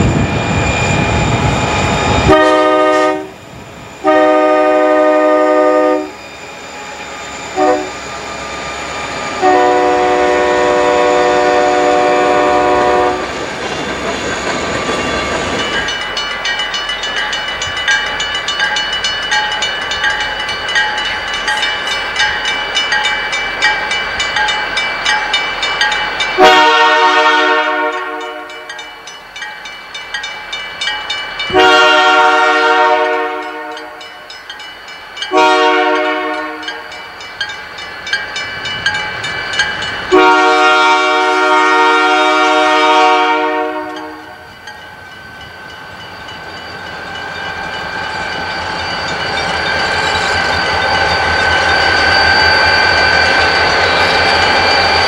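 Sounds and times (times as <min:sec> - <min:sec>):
diesel locomotive engine: 0:00.0 - 0:55.0
railroad crossing bell ringing: 0:00.0 - 0:55.0
locomotive air horn blasts: 0:02.3 - 0:03.4, 0:04.0 - 0:06.2, 0:07.6 - 0:08.0, 0:09.4 - 0:13.3, 0:26.4 - 0:28.6, 0:31.5 - 0:33.9, 0:35.3 - 0:36.8, 0:40.1 - 0:44.3.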